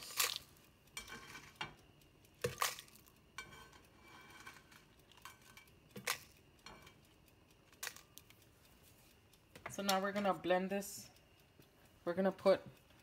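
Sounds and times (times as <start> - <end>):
tongs clinking on metal and glass: 0.0 - 1.8, 3.4 - 7.0.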